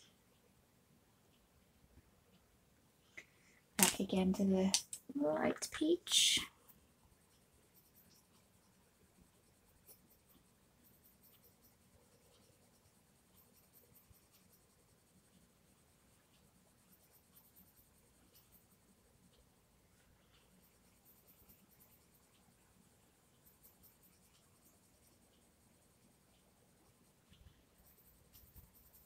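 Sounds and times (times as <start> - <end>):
pencil scratching on paper: 6.7 - 19.4, 20.0 - 29.0.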